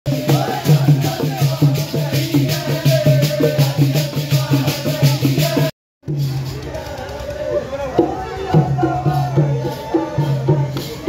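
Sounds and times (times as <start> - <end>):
men singing folk song: 0.1 - 5.7
jingling percussion beat: 0.1 - 11.0.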